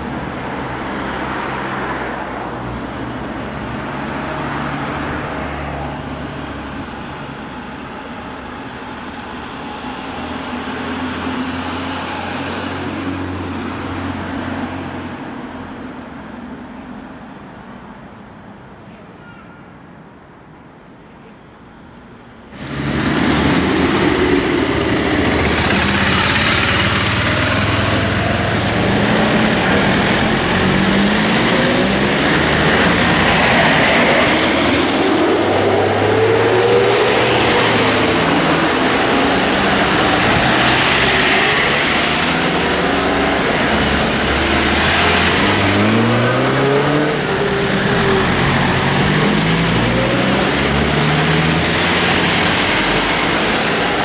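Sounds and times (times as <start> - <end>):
vehicle engines accelerating: 0.0 - 15.8, 22.5 - 54.0
motorcycle accelerating: 22.5 - 54.0
tyre noise on wet road: 22.5 - 54.0.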